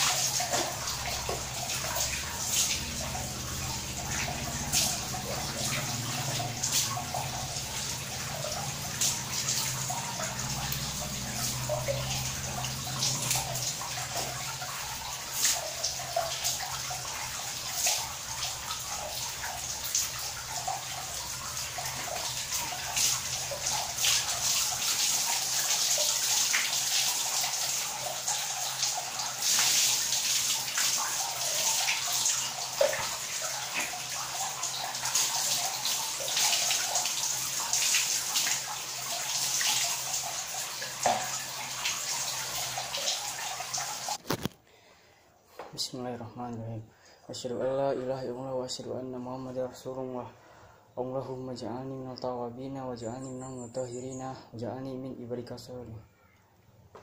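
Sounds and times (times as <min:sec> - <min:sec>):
water splashing: 0:00.0 - 0:44.5
running and dripping water: 0:00.0 - 0:45.7, 0:52.7 - 0:57.0.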